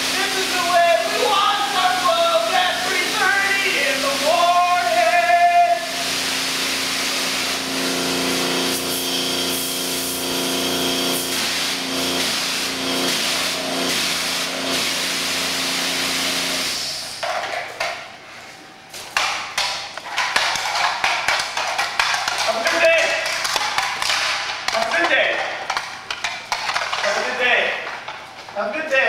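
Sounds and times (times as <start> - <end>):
pressure washer spraying: 0.0 - 17.2.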